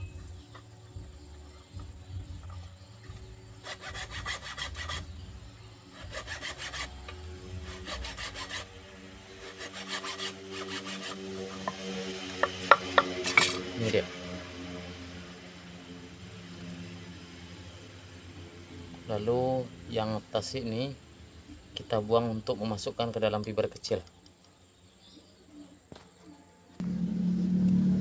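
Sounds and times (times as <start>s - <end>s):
hacksaw cutting through pipe: 3.6s - 5.1s, 5.9s - 8.8s, 9.4s - 11.8s, 12.4s - 13.7s
sharp clicks and knocks: 11.6s - 13.6s.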